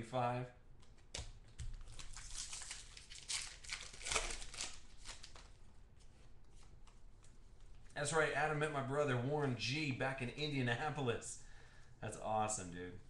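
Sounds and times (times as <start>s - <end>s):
foil wrapper crinkling and tearing: 1.8s - 5.5s.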